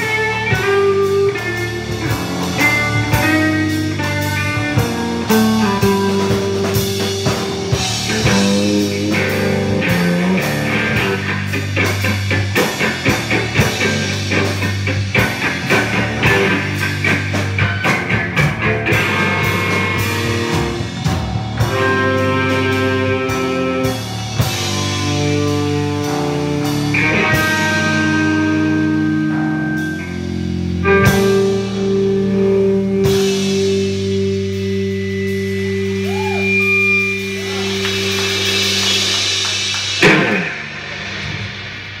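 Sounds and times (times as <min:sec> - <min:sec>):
electric guitar chords: 0:00.0 - 0:42.0
live rock band: 0:00.0 - 0:42.0
cymbal crashes: 0:37.3 - 0:42.0.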